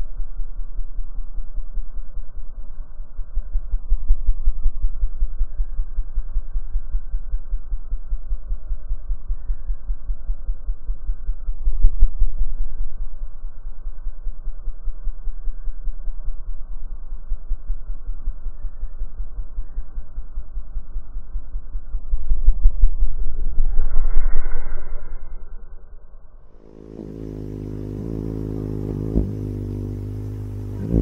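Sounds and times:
slowed hummingbird wingbeats: 26.6s - 31.0s.

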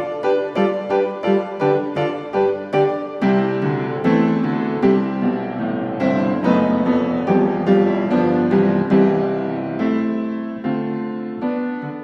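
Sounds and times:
gentle piano music: 0.0s - 12.0s.

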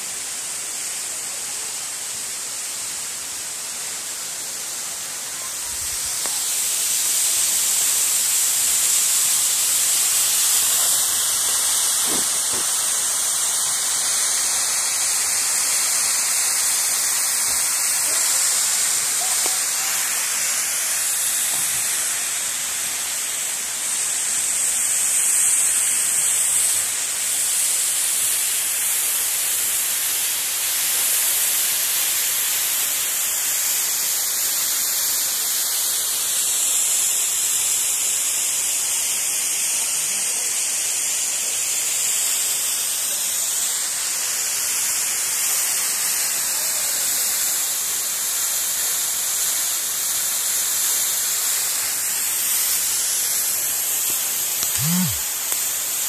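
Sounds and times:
waterfall rushing: 0.1s - 28.7s, 49.8s - 56.0s.

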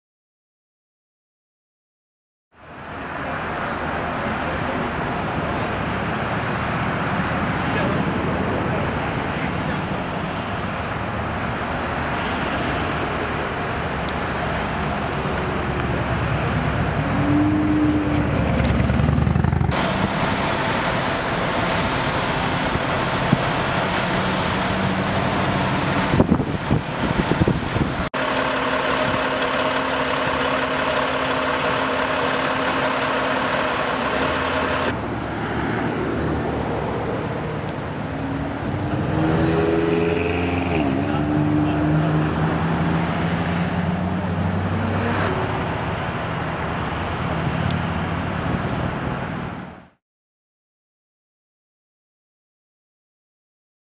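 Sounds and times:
highway traffic passing: 2.6s - 50.0s
vehicle engine idling: 8.7s - 35.0s.

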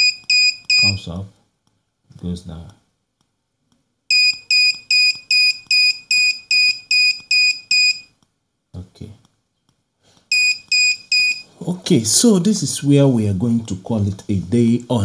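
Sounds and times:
short high-pitched buzzer beeps: 0.0s - 0.9s, 10.3s - 11.5s.

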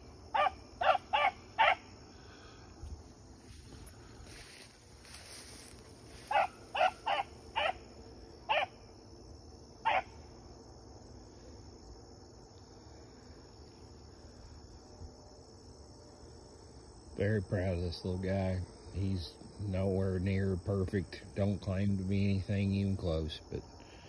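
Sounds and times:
hound barking: 0.3s - 1.9s, 6.3s - 7.8s, 8.5s - 8.8s, 9.8s - 10.2s.

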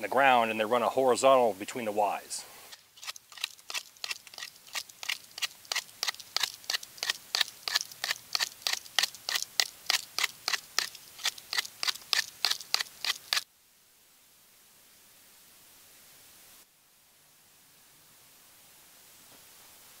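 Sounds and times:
knife whittling wood: 2.7s - 13.4s.

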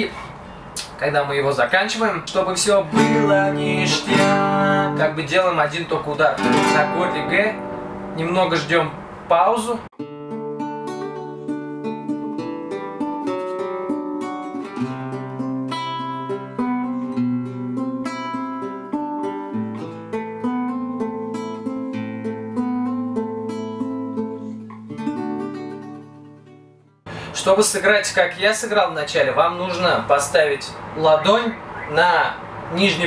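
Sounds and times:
classical guitar strumming: 2.5s - 9.2s, 10.0s - 27.3s.

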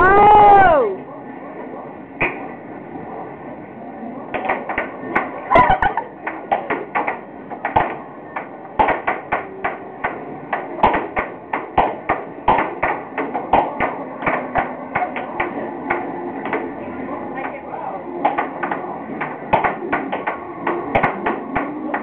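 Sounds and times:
air hockey puck clacking: 2.2s - 2.5s, 4.3s - 17.6s, 18.2s - 22.0s.

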